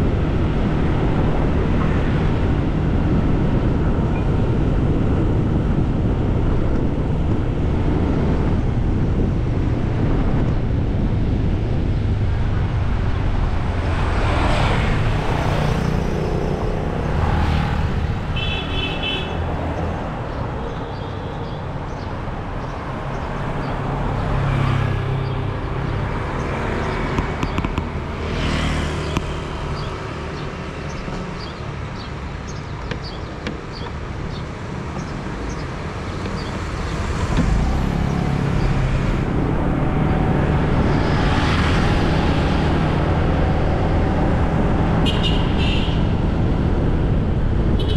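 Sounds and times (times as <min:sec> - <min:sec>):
vehicles passing: 0:00.0 - 0:47.9
car horn toot: 0:45.0 - 0:46.0.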